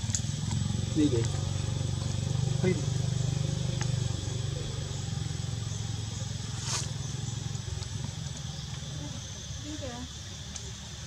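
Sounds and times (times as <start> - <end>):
vehicle engine humming: 0.0 - 11.0
brief hiss: 6.6 - 6.9.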